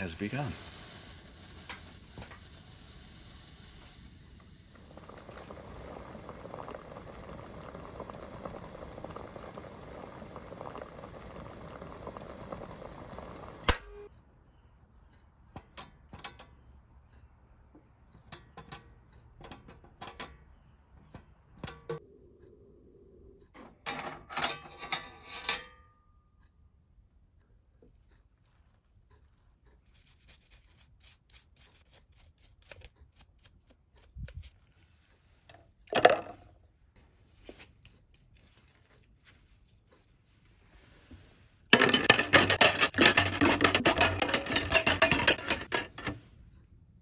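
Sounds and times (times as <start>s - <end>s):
water bubbling in a pot: 0.6s - 14.0s
metal hardware clinking: 41.8s - 46.2s.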